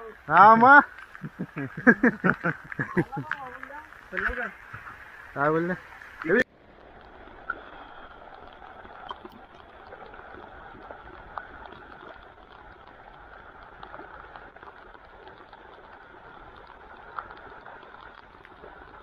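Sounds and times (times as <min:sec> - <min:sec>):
creek water flowing: 0:00.0 - 0:19.0.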